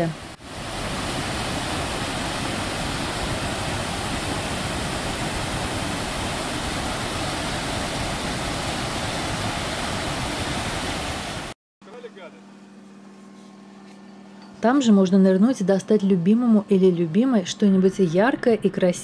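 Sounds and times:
waterfall rushing: 0.0 - 11.6.

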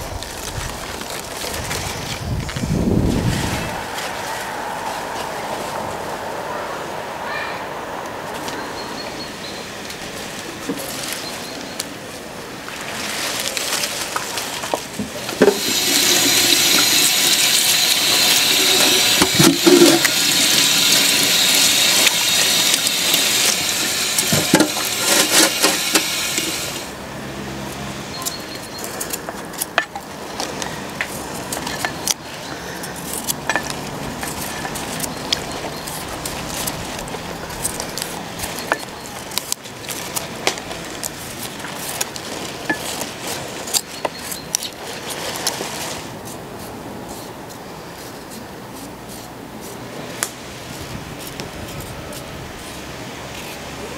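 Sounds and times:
hose water into metal basin: 12.7 - 27.0
knife peeling beetroot: 15.4 - 26.8, 30.4 - 45.6, 46.2 - 53.7.

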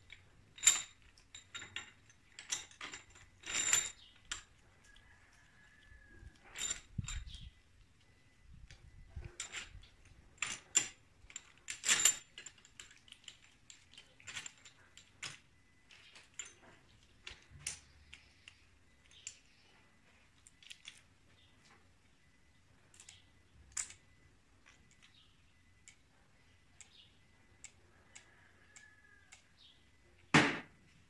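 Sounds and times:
metal engine parts clinking: 0.0 - 5.0, 6.1 - 7.5, 8.8 - 19.5.

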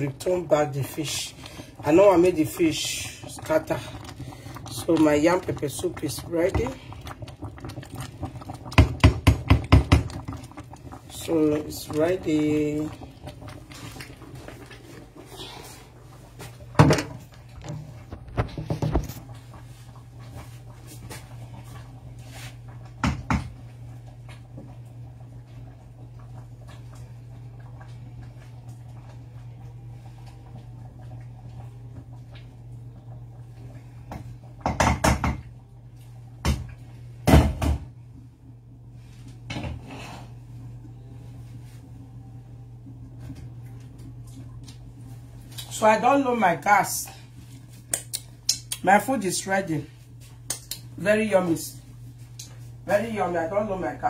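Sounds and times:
steady low hum: 0.0 - 54.0
knocks and clatters in kitchen: 6.3 - 11.0, 16.4 - 19.3, 22.9 - 23.6, 34.0 - 35.5, 36.4 - 38.0.

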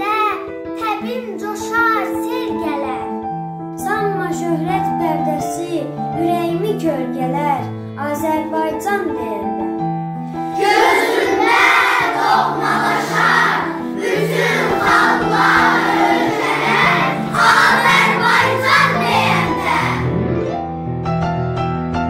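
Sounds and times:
instrumental music with held notes: 0.0 - 22.0
children shouting in unison: 10.6 - 20.1.

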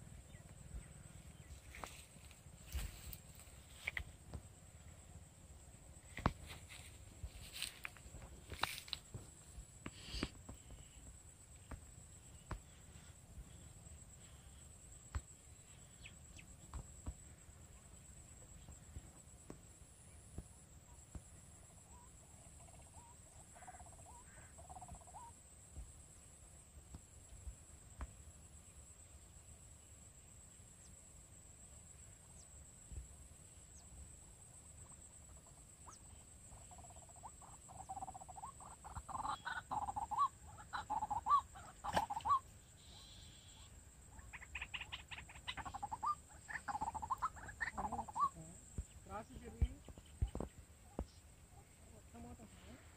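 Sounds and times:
insect drone: 0.0 - 52.9
low bird calls: 34.8 - 52.4.

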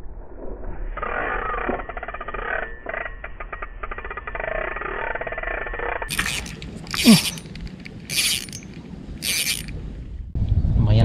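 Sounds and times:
fishing reel ticking: 4.8 - 9.7.

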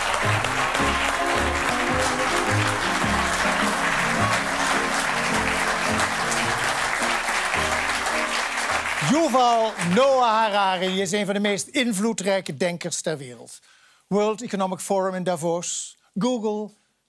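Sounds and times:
audience applauding: 0.0 - 11.6.

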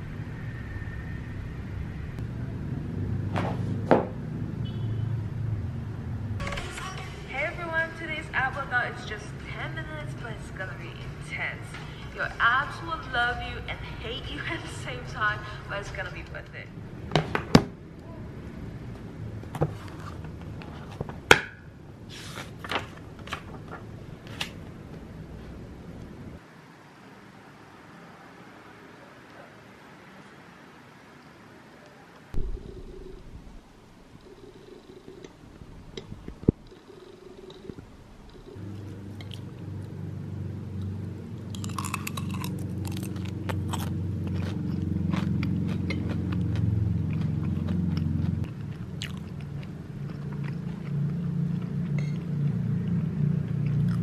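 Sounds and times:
page flipping rustle: 22.1 - 24.6
steady low rumble: 32.3 - 44.4
crunching and chewing food: 40.7 - 54.0.

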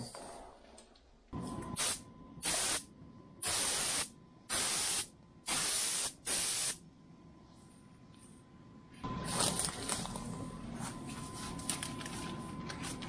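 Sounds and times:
spray gun hissing bursts: 1.8 - 2.8, 3.4 - 6.8.

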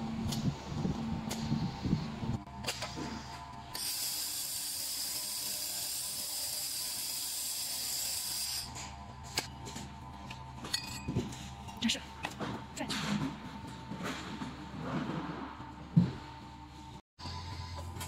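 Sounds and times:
laser welder hissing: 3.7 - 8.7.

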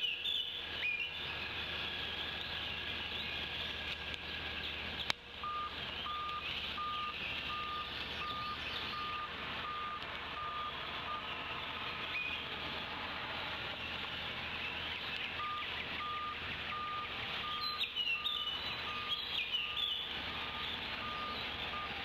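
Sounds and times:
steady high outdoor hiss: 0.0 - 22.0
reversing alarm beeps: 5.4 - 11.3, 15.4 - 22.0.

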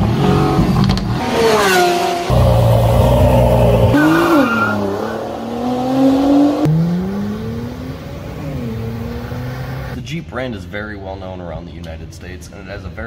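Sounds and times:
car engines accelerating: 0.0 - 10.0.

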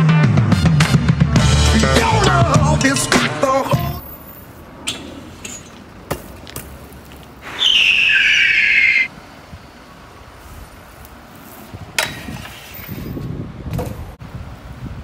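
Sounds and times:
scooter wheel squeal: 7.4 - 9.1, 12.2 - 13.2.

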